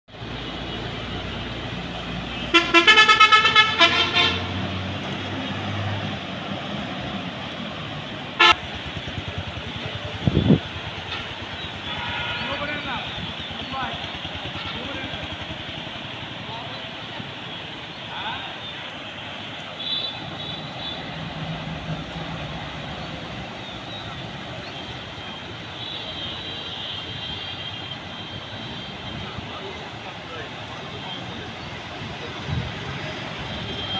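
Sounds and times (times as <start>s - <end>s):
vehicle horn short beeps: 11.8s - 12.8s.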